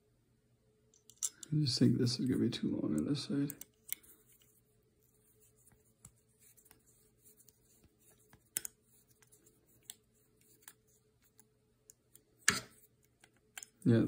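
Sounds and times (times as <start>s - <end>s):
small clicks and taps of handling: 0.9s - 1.6s, 2.2s - 4.6s, 5.7s - 13.9s.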